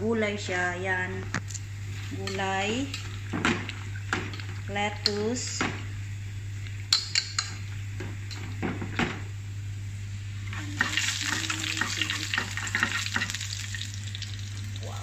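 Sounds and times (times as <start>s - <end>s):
steady low hum: 0.0s - 15.0s
garlic sizzling in hot oil: 10.3s - 15.0s.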